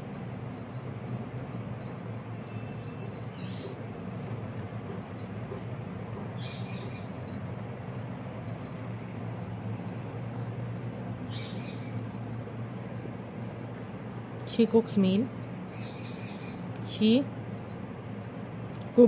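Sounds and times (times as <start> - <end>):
low background hum: 0.0 - 19.0.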